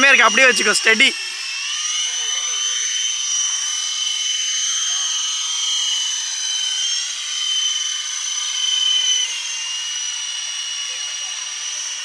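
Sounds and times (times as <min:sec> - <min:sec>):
toy helicopter whine: 0:00.0 - 0:12.0.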